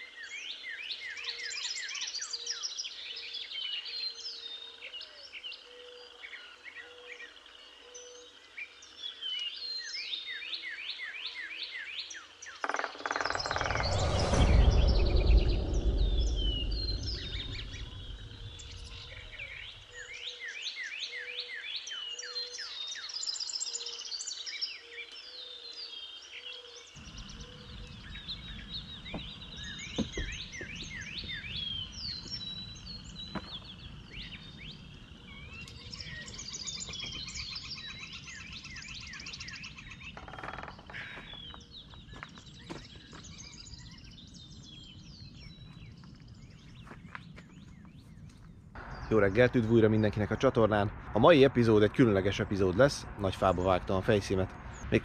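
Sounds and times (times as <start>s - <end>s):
songbirds singing: 0.0s - 51.4s, 52.6s - 55.0s
loud low rumble: 13.3s - 19.9s, 48.8s - 55.0s.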